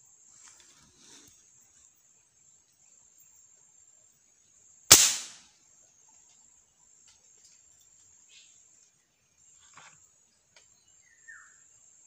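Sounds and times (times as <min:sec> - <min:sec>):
air rifle shot: 0:04.9 - 0:05.4.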